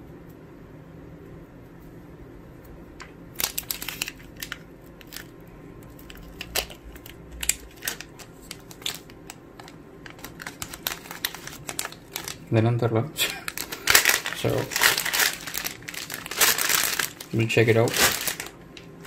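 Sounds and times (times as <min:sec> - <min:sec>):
plastic bags crinkling: 0:03.4 - 0:12.5, 0:13.2 - 0:19.0.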